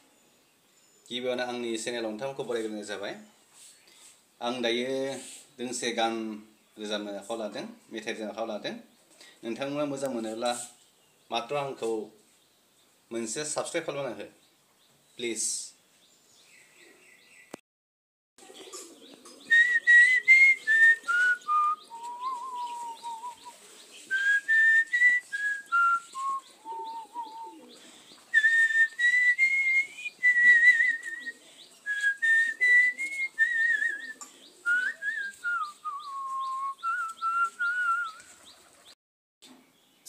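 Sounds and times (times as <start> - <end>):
person whistling a melody: 19.5 - 23.4, 24.1 - 27.5, 28.4 - 31.3, 31.9 - 38.2.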